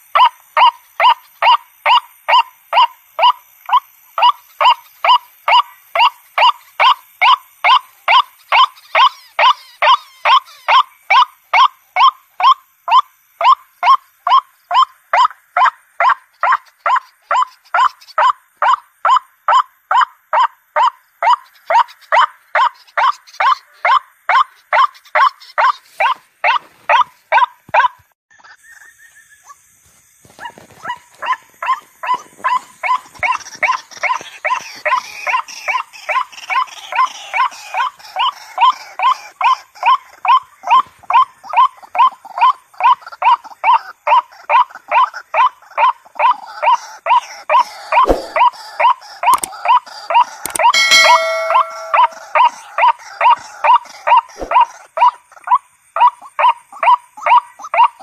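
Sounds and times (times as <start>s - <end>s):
waterhen calling harsh notes: 47.8s - 52.7s.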